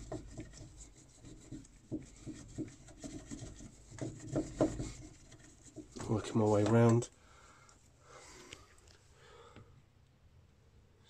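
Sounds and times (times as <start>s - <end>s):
cloth scrubbing inside housing: 0.0s - 7.1s.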